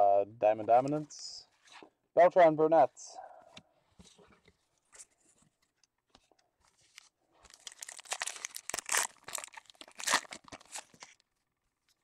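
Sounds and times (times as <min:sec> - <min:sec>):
plastic wrapper tearing and crinkling: 0:06.9 - 0:11.3.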